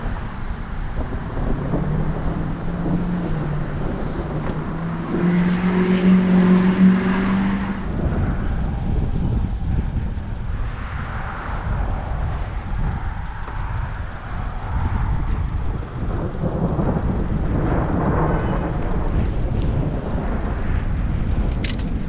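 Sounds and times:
thunder rumbling: 0.0s - 10.5s, 15.5s - 21.4s.

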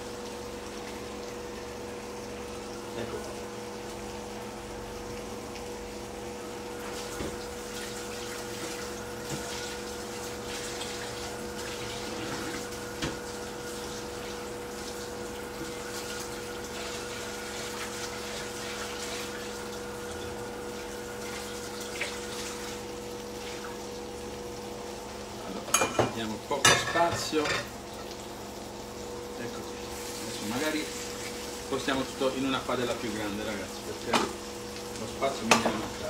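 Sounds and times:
meat sizzling in a pan: 0.0s - 36.0s.

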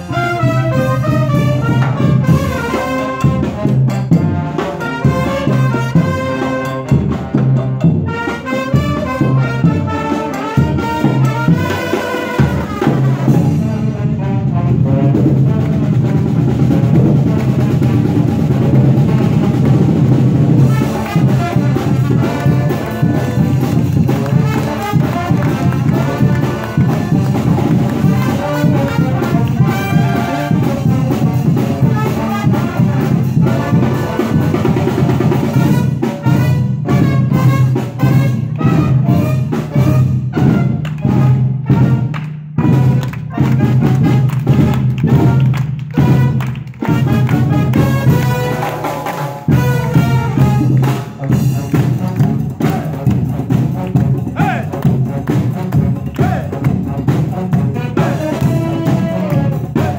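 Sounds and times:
brass band playing: 0.0s - 59.9s
snare and bass drums: 0.0s - 59.9s.

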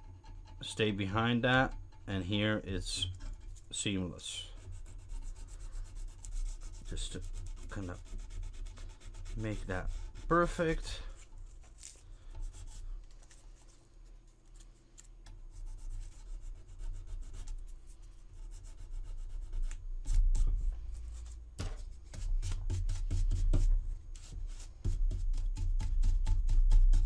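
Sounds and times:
sandpaper scraping resin: 3.0s - 13.3s, 15.5s - 21.4s.

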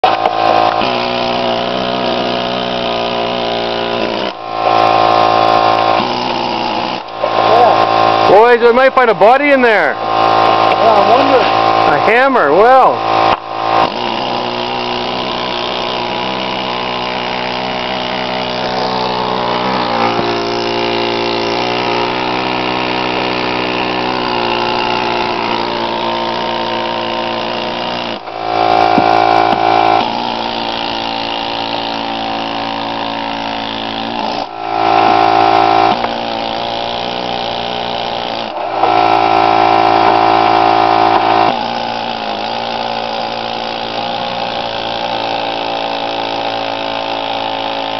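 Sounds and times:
power tool drilling into brick: 0.0s - 47.9s.

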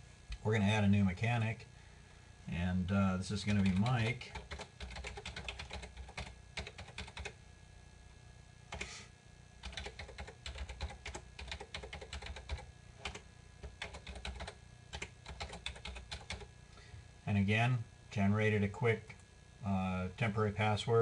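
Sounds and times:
typing on keyboard: 3.5s - 7.4s, 9.6s - 16.5s.

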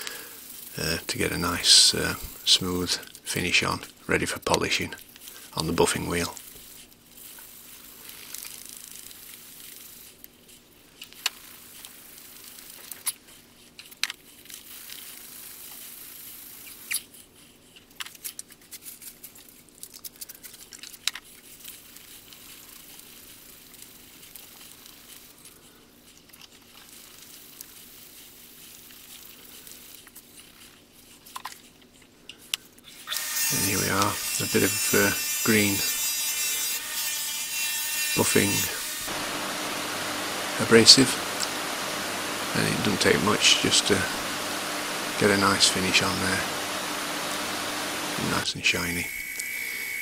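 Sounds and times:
abrasive paper rubbing on steel: 32.9s - 48.4s.

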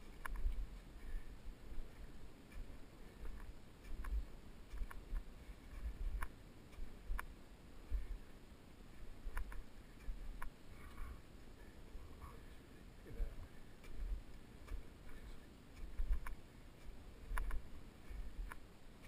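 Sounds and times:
muffled footsteps on snow: 0.0s - 19.0s
light ticking clicks: 0.1s - 0.8s, 2.5s - 7.4s, 9.3s - 10.6s, 13.8s - 17.7s, 18.4s - 19.0s.

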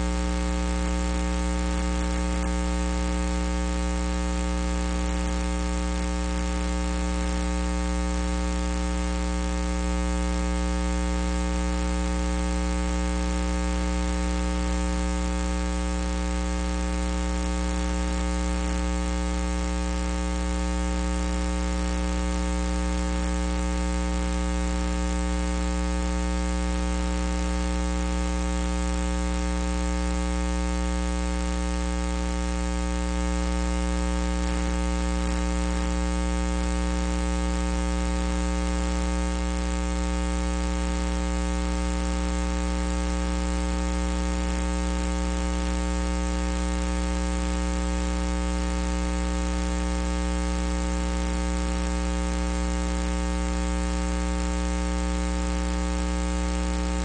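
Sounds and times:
electrical mains hum and buzz: 0.0s - 7.7s, 22.6s - 30.2s, 34.2s - 39.0s.

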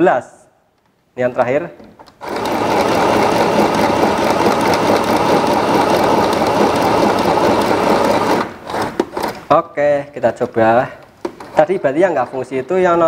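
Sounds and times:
electric sewing machine running: 2.2s - 9.4s.

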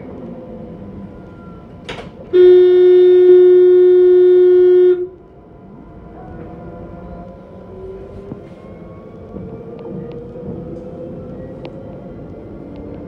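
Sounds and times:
low rumble of running tram: 0.0s - 13.0s
tram horn blast: 2.3s - 5.3s.

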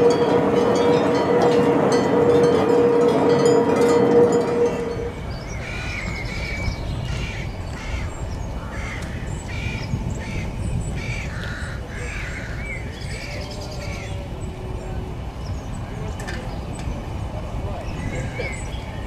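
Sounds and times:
steady low rumble: 0.0s - 19.0s
birds calling: 4.7s - 19.0s.

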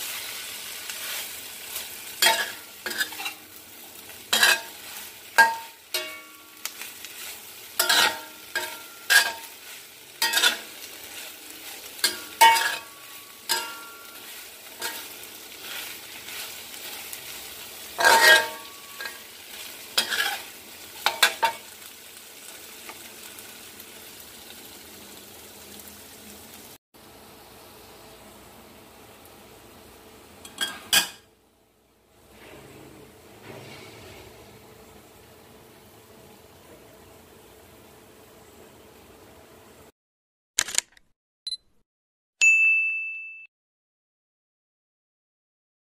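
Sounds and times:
steady sizzle: 0.0s - 39.9s.

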